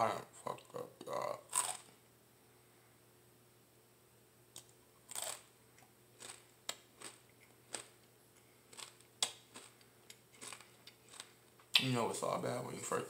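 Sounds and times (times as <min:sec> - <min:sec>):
person chewing crunchy chip: 0:01.1 - 0:02.0, 0:04.6 - 0:05.5, 0:06.1 - 0:11.5.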